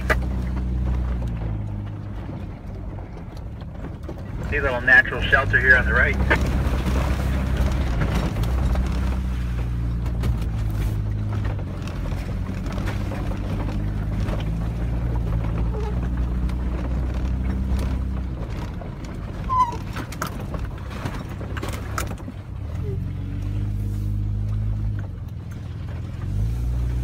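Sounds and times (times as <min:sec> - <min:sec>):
knocks and rattles from rough ground: 0:00.0 - 0:22.8
truck engine running at low speed: 0:00.0 - 0:27.0
short squeak: 0:19.4 - 0:20.0.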